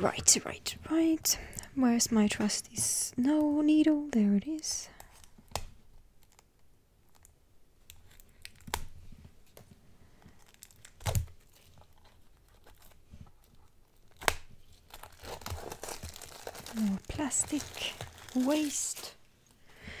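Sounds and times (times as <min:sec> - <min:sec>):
plastic wrap tearing and crinkling: 0:05.1 - 0:09.6, 0:10.3 - 0:19.3.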